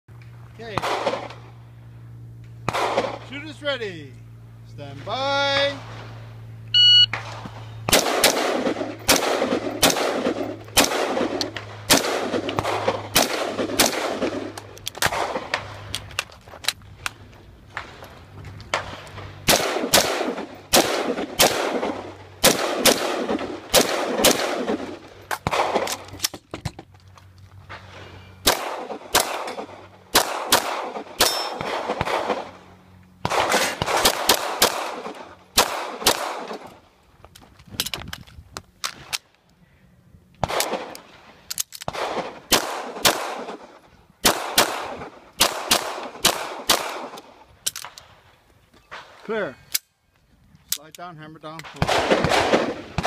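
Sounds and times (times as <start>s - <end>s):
gunshots echoing: 0.7s - 1.5s, 2.6s - 3.6s, 7.1s - 15.9s, 18.7s - 26.1s, 28.4s - 36.7s, 40.4s - 41.2s, 41.9s - 47.3s, 51.6s - 53.0s
pistol firing: 0.8s - 1.4s, 2.6s - 3.2s, 7.1s - 15.7s, 18.7s - 26.1s, 28.4s - 32.6s, 33.2s - 36.7s, 40.4s - 41.0s, 41.9s - 43.6s, 44.2s - 47.2s, 51.7s - 53.0s
steel targets ringing: 31.2s - 31.7s.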